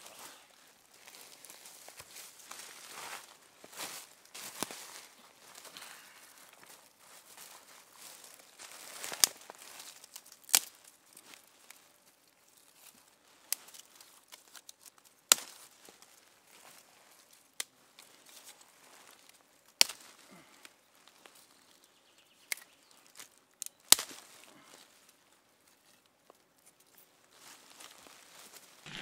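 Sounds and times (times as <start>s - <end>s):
twigs rustling and crackling: 0.0s - 29.0s
wood snapping: 10.0s - 10.8s, 19.8s - 20.1s, 23.6s - 24.2s.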